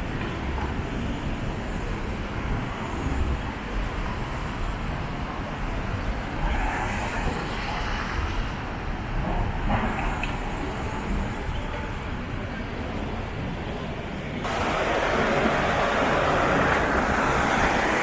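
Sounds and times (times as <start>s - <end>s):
cars going by: 14.4s - 18.0s.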